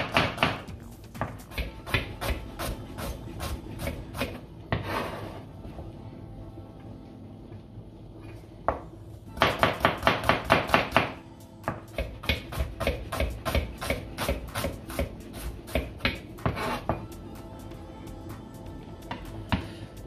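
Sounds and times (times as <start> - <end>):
knife chopping on cutting board: 0.0 - 4.9, 9.4 - 15.1.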